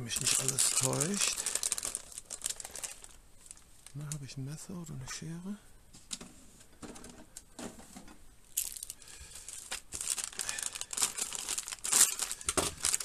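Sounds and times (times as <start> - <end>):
packaging crinkling and tearing: 0.0 - 4.2, 8.5 - 13.0.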